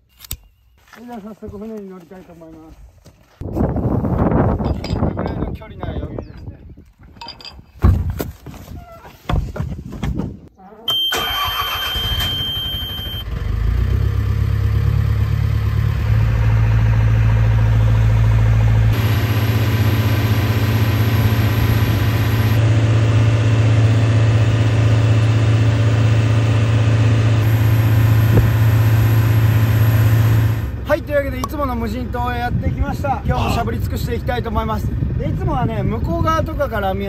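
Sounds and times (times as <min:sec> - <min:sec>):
steady high beep: 0:10.9 - 0:13.2
boat engine starting and running: 0:10.9 - 0:32.3.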